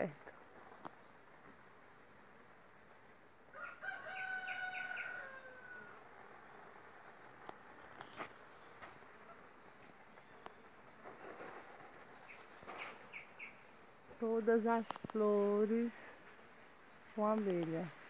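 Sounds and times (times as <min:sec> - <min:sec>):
rooster crowing: 0:03.5 - 0:06.2.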